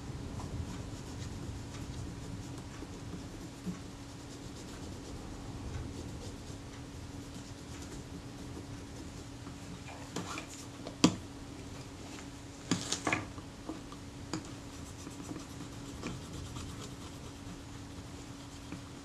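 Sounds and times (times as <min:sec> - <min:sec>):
faint steady hum: 0:00.0 - 0:19.0
scratching and rubbing: 0:00.4 - 0:10.7, 0:14.7 - 0:19.0.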